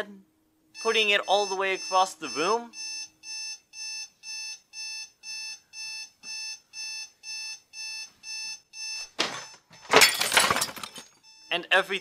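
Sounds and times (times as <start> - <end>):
alarm clock buzzer beeping: 0.7 - 10.0.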